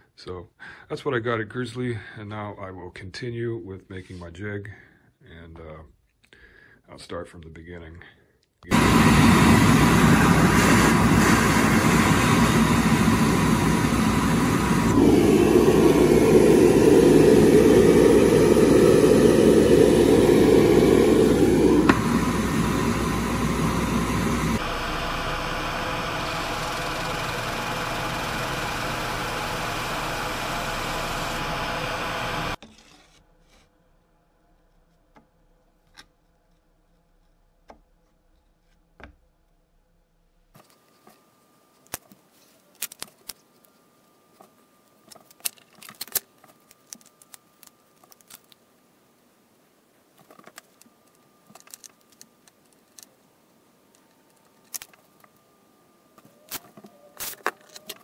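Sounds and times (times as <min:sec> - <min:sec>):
drill press boring wood: 0:08.7 - 0:32.6.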